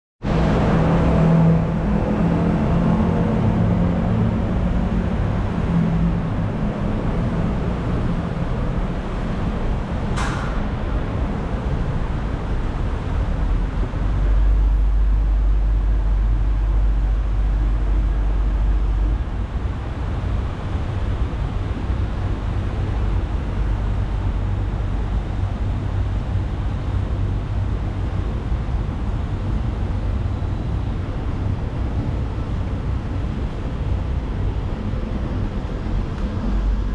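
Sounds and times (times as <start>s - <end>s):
escalator rumbling: 0.3s - 36.9s
short sharp click: 10.2s - 10.7s.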